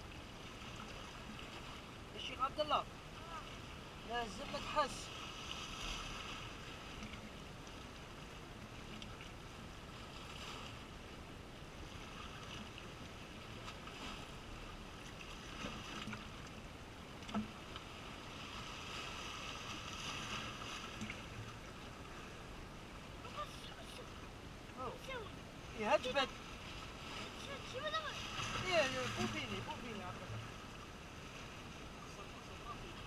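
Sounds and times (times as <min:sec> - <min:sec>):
waves washing over rocks: 0:00.0 - 0:07.0, 0:17.5 - 0:33.0.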